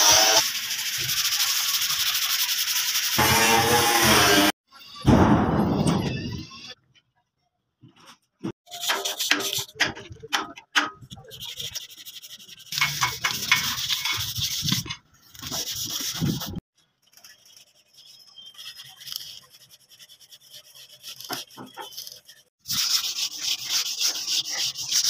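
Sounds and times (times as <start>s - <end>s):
sanding painted metal by hand: 0.0s - 4.5s, 8.6s - 25.0s.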